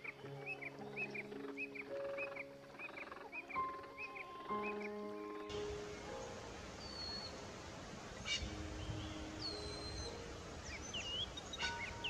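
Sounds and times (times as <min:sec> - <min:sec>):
birds whistling and chirping: 0:00.0 - 0:07.4, 0:08.3 - 0:12.0
steady hiss: 0:04.5 - 0:12.0.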